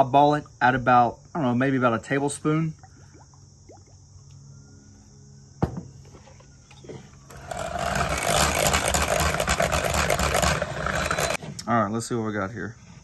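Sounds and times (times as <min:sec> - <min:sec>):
knock: 0:05.6 - 0:05.9
electric hand mixer running: 0:07.3 - 0:11.4.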